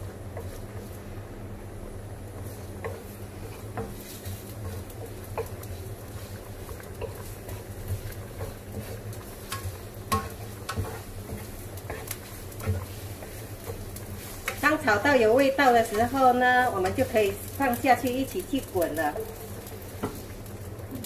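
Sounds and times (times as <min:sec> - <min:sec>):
ginger frying in oil: 0:00.0 - 0:21.0
wooden spatula tapping a pan: 0:02.8 - 0:05.8, 0:06.6 - 0:17.1.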